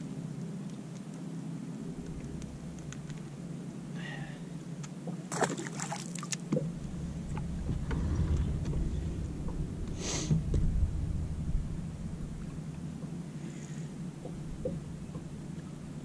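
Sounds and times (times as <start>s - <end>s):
low rumble: 1.5s - 5.3s, 6.4s - 16.0s
water sloshing against boat hull: 4.7s - 16.0s.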